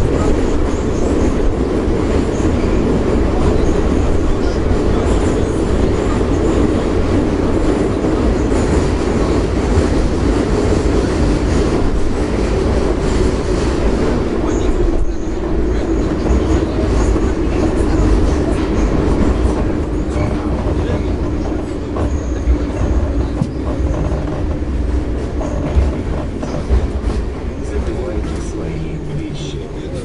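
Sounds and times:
metro train wheels rumbling: 0.0 - 30.0.

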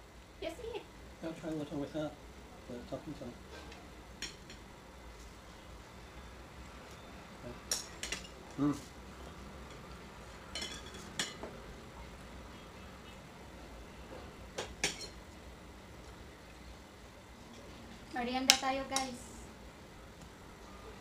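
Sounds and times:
cutlery clinking on plates: 7.7 - 8.4, 10.5 - 11.6, 14.6 - 15.2.

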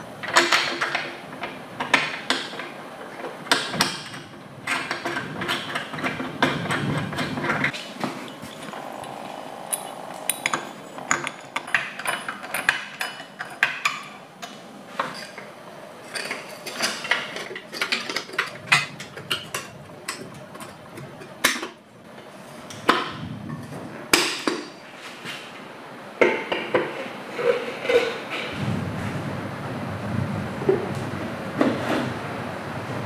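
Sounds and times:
grinder parts clicking and clinking: 9.7 - 21.7.

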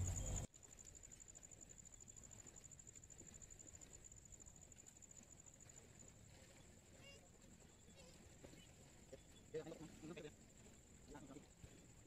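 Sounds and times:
high-pitched insect trill: 0.0 - 5.7.

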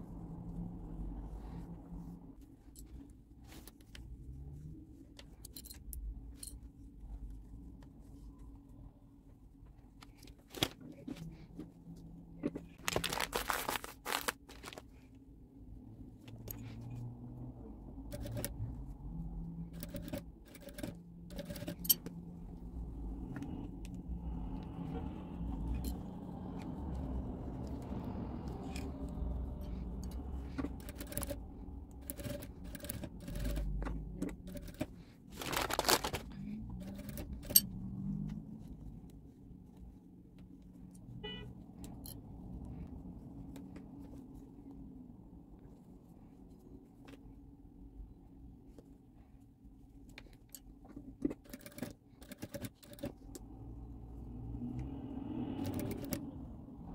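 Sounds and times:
fabric rustling: 6.2 - 15.2, 34.3 - 41.0
sewing machine stitching: 18.1 - 18.6, 19.6 - 22.0, 29.6 - 37.7, 51.3 - 53.3, 55.6 - 56.2.

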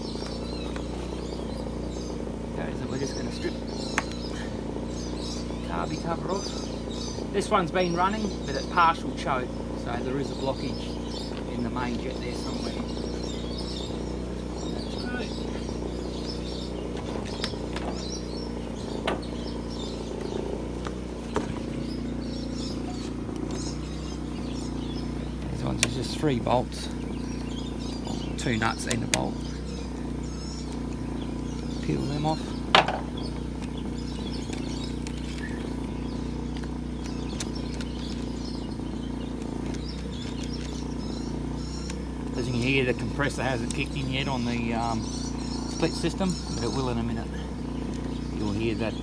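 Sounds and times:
air conditioner compressor: 0.0 - 49.0
birds chirping: 0.0 - 49.0
small generator engine running: 0.0 - 49.0.

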